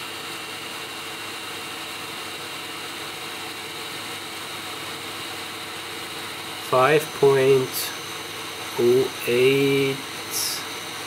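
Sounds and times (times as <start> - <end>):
tool grinder humming with hiss: 0.0 - 11.0.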